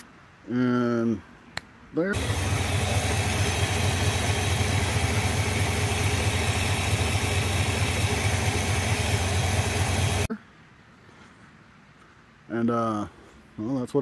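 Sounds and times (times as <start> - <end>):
car engine idling: 2.2 - 10.3.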